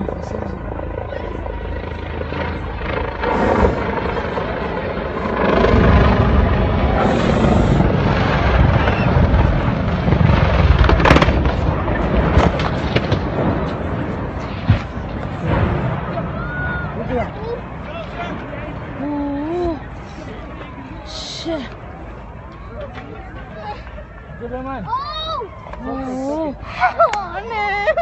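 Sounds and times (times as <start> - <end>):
heavy low rumble of explosion: 0.0 - 21.1
sharp crack: 8.3 - 16.5.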